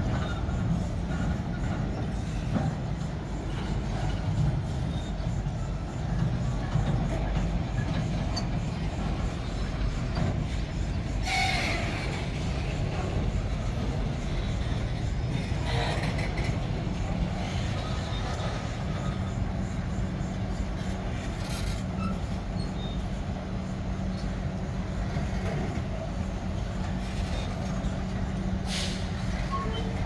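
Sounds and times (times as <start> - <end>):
train wheels rumbling on rails: 0.0 - 30.0
wheels screeching: 6.1 - 19.5.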